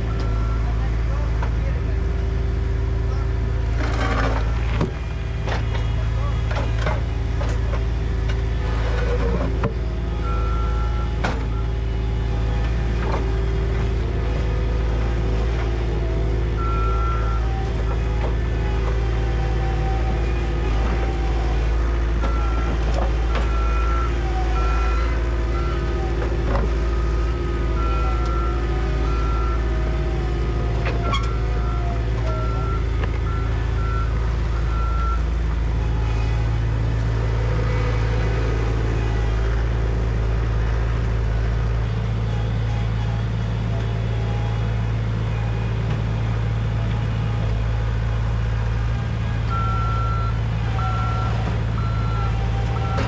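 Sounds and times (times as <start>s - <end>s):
heavy machinery engine running: 0.0s - 53.0s
reversing alarm beeps: 49.5s - 53.0s.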